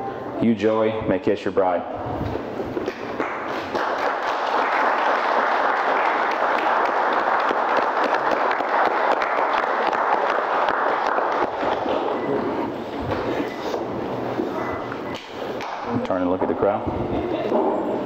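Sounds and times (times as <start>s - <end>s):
crowd applauding: 3.2s - 12.3s.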